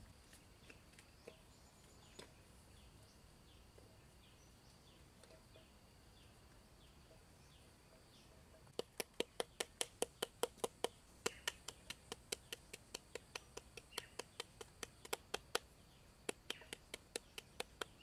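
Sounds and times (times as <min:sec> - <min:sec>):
faint bird chirps: 0:00.2 - 0:10.3, 0:10.9 - 0:12.8, 0:13.4 - 0:18.0
pounder knocking in clay pot: 0:08.6 - 0:18.0.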